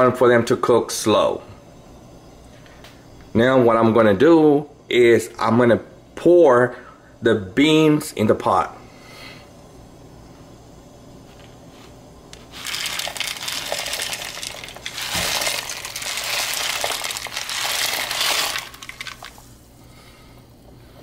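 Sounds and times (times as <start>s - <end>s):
beans ticking: 12.3s - 19.6s
beans rattling into water: 12.4s - 19.5s.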